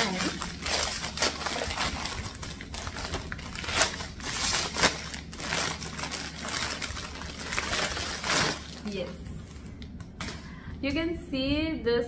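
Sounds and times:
plastic bag crunches: 0:00.0 - 0:09.1
plastic bag crinkling: 0:00.0 - 0:09.2.

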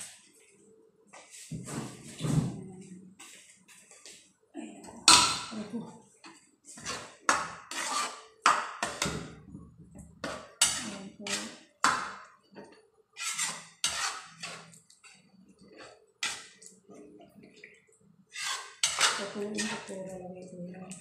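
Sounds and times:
kitchen utensil striking hard surface: 0:05.0 - 0:05.6.

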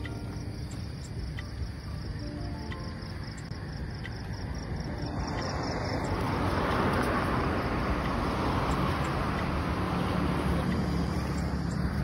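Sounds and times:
insects chirping: 0:00.0 - 0:12.0
car passing close: 0:04.3 - 0:12.0.

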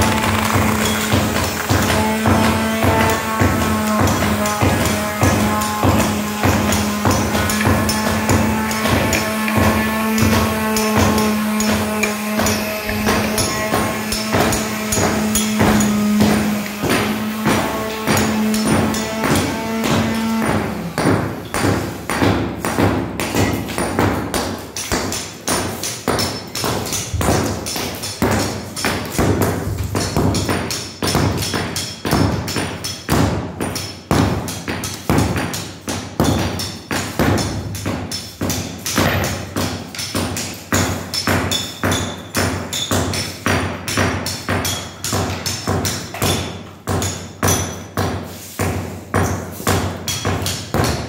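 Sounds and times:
hammer knocking on floor tiles: 0:00.0 - 0:51.0.

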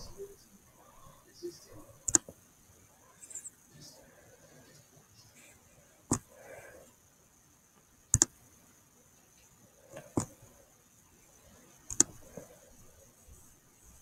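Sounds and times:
computer mouse clicks: 0:02.0 - 0:02.4, 0:08.1 - 0:08.4, 0:11.8 - 0:14.0.

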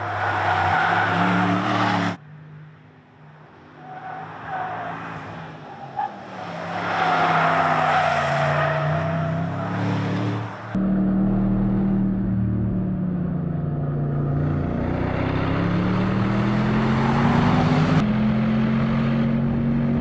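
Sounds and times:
car engine at high revs: 0:09.2 - 0:20.0.

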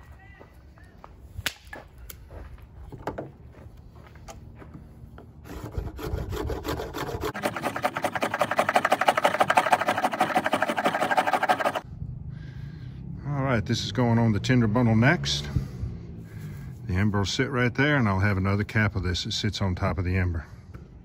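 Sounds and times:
knife scraping wooden stick: 0:05.5 - 0:11.8.

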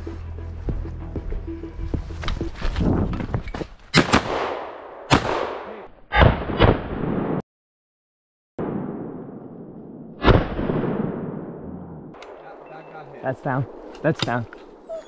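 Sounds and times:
shotgun shots echoing: 0:04.0 - 0:07.4.

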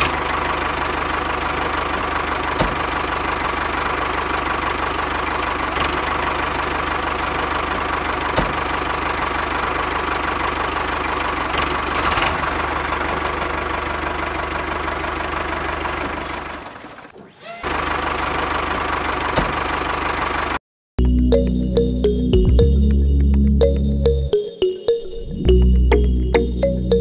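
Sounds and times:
tractor engine idling: 0:00.0 - 0:24.4.

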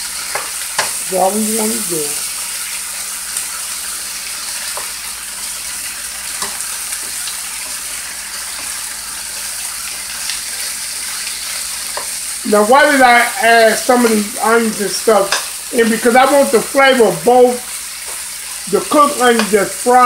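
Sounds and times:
meat and onions sizzling in oil: 0:00.0 - 0:20.0.

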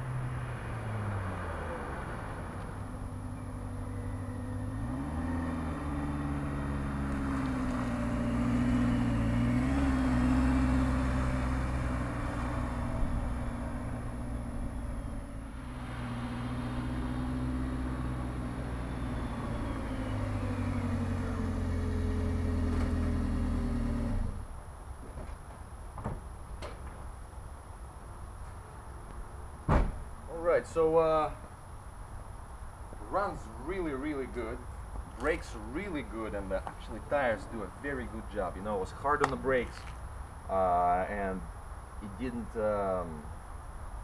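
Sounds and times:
van engine running: 0:02.5 - 0:24.5.

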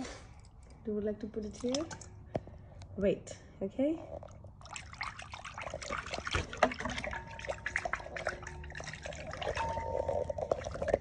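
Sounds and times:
small splashes and drips: 0:00.4 - 0:02.4, 0:04.2 - 0:11.0
water sloshing in a glass bowl: 0:01.3 - 0:02.3, 0:04.1 - 0:11.0.

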